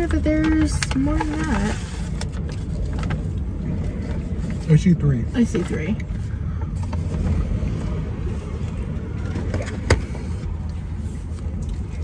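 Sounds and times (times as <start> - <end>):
low rumble inside car: 0.0 - 12.0.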